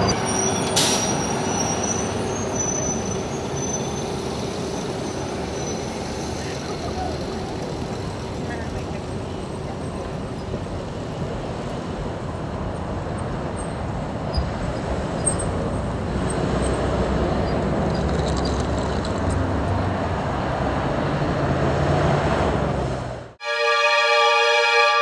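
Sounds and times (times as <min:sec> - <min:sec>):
cars passing: 0:04.1 - 0:23.4
sustained musical chord: 0:23.4 - 0:25.0.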